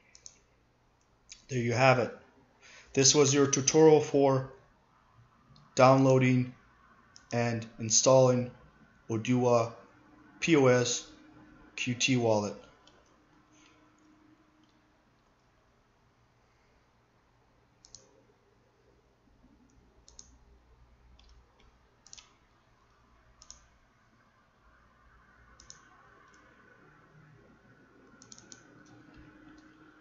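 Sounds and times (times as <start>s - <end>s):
low room hum: 0.0s - 30.0s
computer mouse clicks: 0.1s - 0.4s, 7.1s - 7.4s, 17.8s - 18.2s, 19.6s - 20.4s, 21.2s - 23.8s, 25.6s - 26.5s, 28.0s - 29.8s.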